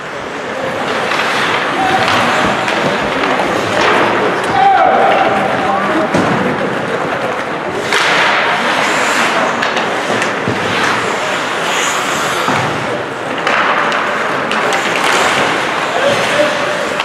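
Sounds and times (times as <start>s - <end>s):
skates scraping on ice: 0.0s - 17.0s.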